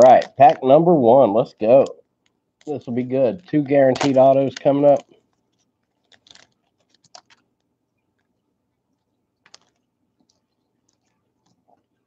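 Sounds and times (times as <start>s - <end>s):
cards clicking: 3.5s - 5.1s
foil wrapper crinkling: 3.6s - 7.5s, 9.4s - 9.9s.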